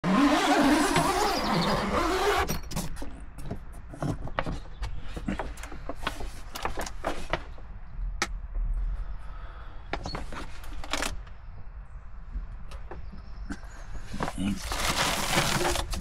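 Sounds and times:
zip pulled open: 0.0 - 2.6.

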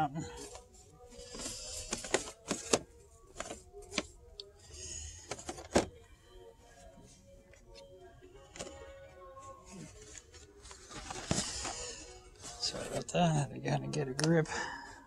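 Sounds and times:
plastic packaging clicks and crinkles: 0.4 - 4.5.

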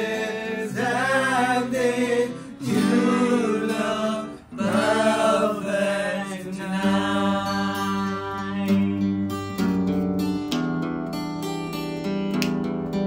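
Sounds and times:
men singing: 0.0 - 9.3
acoustic guitar: 0.0 - 13.0.

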